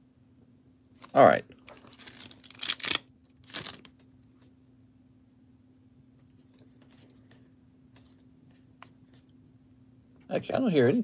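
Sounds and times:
steady low hum: 0.0s - 11.0s
cards rustling and clicking: 1.0s - 4.5s
wrapper crinkling: 1.7s - 3.9s.

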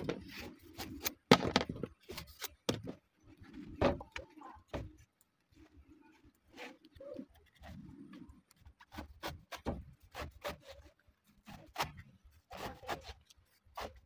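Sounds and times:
knife cutting coconut husk: 8.6s - 14.0s.

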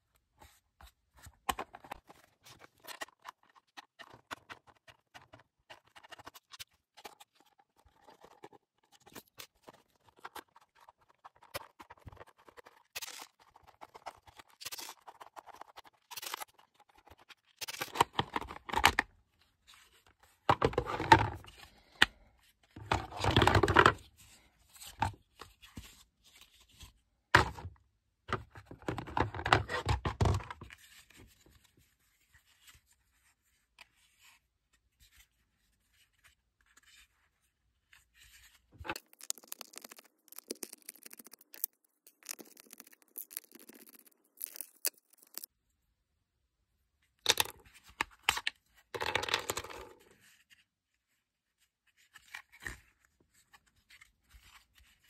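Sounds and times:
plastic parts scraping and knocking: 20.3s - 24.2s, 27.4s - 30.9s, 38.4s - 45.5s, 47.3s - 50.2s.

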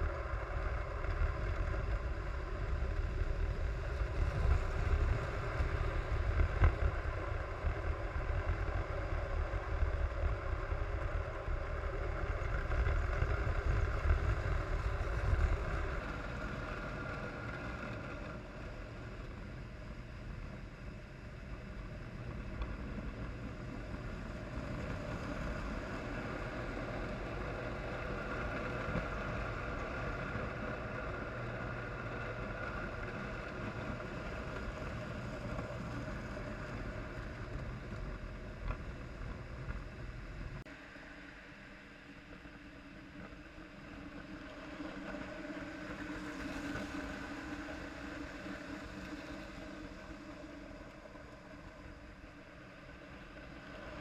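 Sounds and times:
toy train wheels and motors rumbling: 0.0s - 40.6s.

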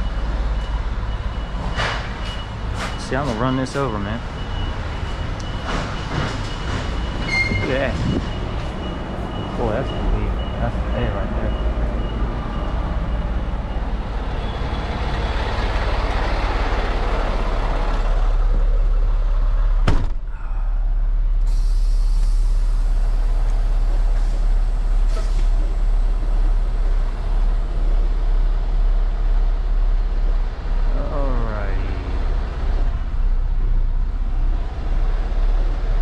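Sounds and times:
diesel engine idling: 0.0s - 36.0s
cab door slamming: 19.8s - 20.3s.

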